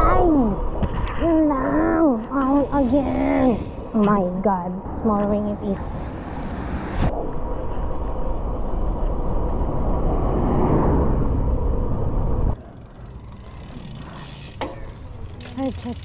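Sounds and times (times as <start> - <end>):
road noise: 0.0 - 16.0
wind rumble on microphone: 4.8 - 12.6.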